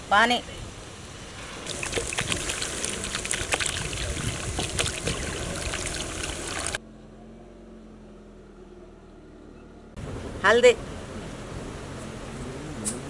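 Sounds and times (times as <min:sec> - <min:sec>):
splashing and sizzling: 0:01.2 - 0:06.8
water poured into hot oil: 0:01.6 - 0:06.8.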